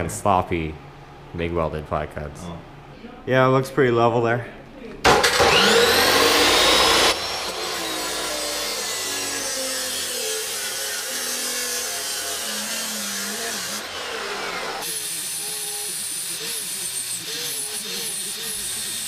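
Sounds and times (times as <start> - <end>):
angle grinder cutting steel pipe: 5.1 - 19.0.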